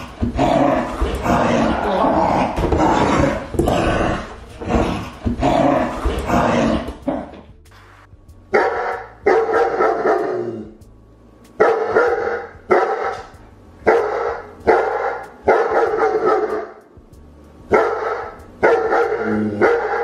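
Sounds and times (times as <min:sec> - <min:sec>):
dog barking: 0:08.5 - 0:10.5, 0:11.6 - 0:16.8, 0:17.7 - 0:20.0.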